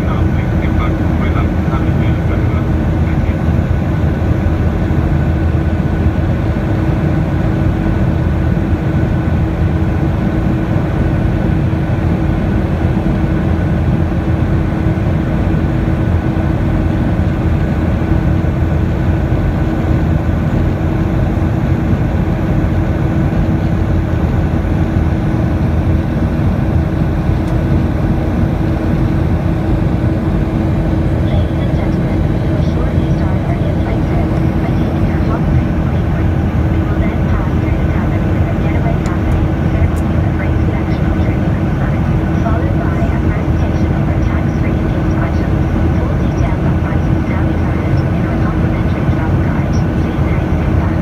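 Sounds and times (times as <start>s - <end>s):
airplane cabin rumble: 0.0s - 51.0s
constant hum: 0.0s - 51.0s.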